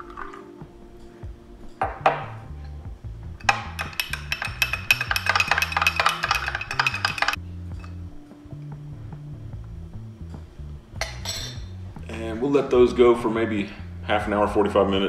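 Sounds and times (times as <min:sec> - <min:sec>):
background music: 0:00.0 - 0:15.0
metal spoon clinking in glass: 0:03.4 - 0:07.9, 0:11.0 - 0:11.6.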